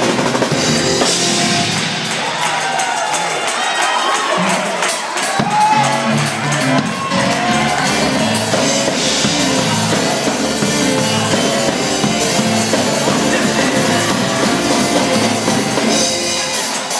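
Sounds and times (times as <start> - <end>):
drum kit with cymbals: 0.0 - 16.9
keyboard: 0.0 - 16.9
electric bass guitar: 5.8 - 16.2.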